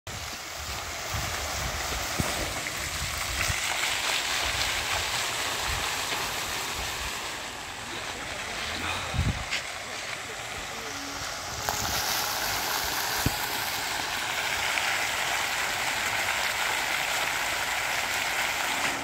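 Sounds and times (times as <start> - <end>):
fountain water splashing: 0.1 - 19.0.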